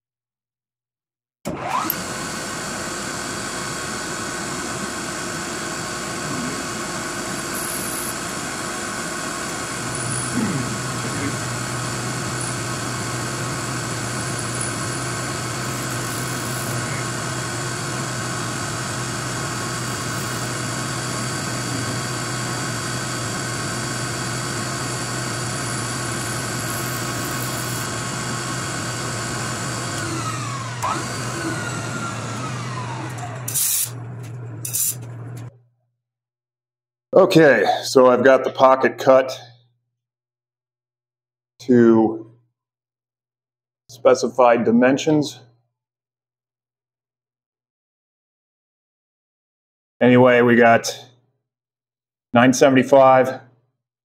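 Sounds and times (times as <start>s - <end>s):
milling machine whine: 1.5s - 35.5s.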